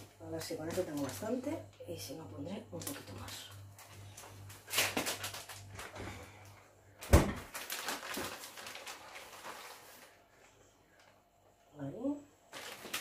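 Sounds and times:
plastic bag crinkling: 0.4s - 1.6s, 2.7s - 6.0s, 7.0s - 10.3s, 12.5s - 13.0s.

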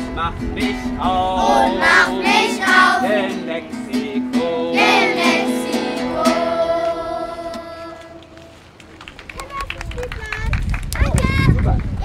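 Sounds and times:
acoustic guitar: 0.0s - 8.8s
children singing: 1.2s - 3.6s, 4.4s - 8.4s.

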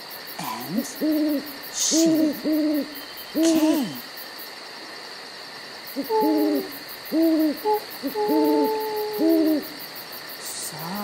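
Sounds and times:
owl hooting: 0.7s - 4.1s, 5.9s - 9.8s.

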